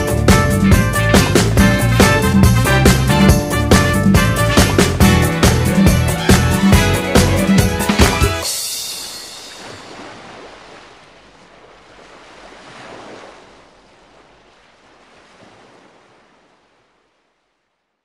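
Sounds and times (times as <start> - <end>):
sea waves washing in: 4.2 - 17.4.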